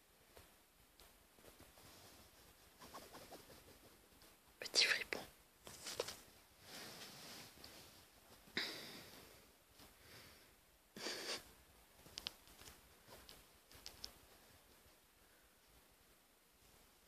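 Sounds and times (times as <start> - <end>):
faint soft clicks: 12.0 - 14.9.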